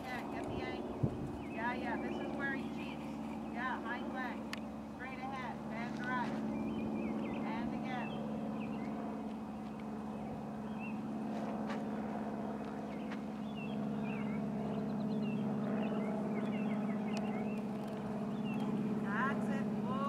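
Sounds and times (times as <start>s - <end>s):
birds chirping: 0.0s - 20.0s
steady engine drone: 0.0s - 20.0s.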